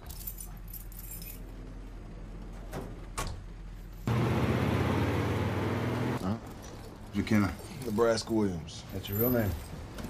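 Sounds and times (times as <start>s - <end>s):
bus engine running: 3.5s - 6.2s.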